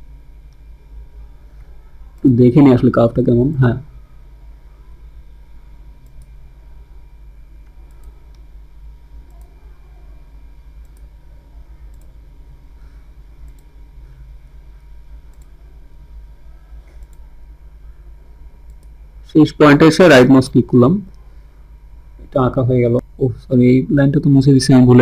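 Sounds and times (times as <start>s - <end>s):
low electrical hum: 0.0s - 25.0s
computer mouse clicking: 6.0s - 6.4s, 7.6s - 8.5s, 10.8s - 11.2s, 11.8s - 12.2s, 13.4s - 13.8s, 15.2s - 15.6s, 16.8s - 17.2s, 18.6s - 19.0s.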